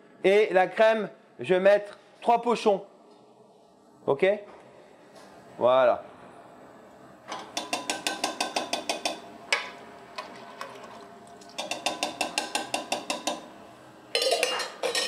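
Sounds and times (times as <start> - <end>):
utensil clinking in metal saucepan: 7.4 - 9.2, 11.5 - 13.5, 14.1 - 15.0.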